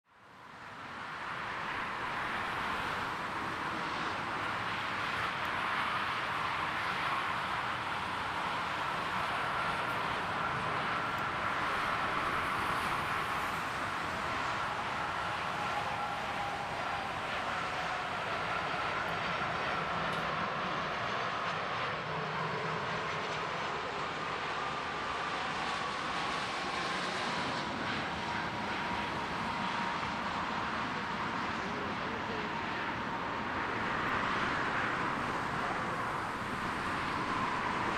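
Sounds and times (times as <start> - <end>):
jet engines roaring: 0.6 - 37.9
faint high whine: 1.4 - 37.9.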